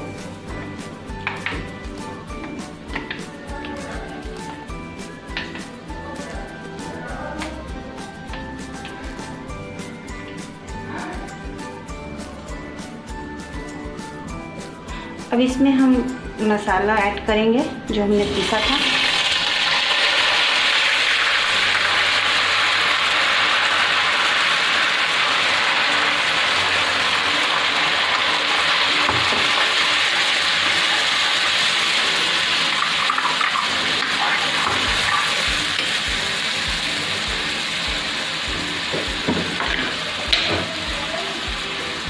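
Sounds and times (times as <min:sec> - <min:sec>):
paste sizzling in hot oil: 0:18.3 - 0:42.0.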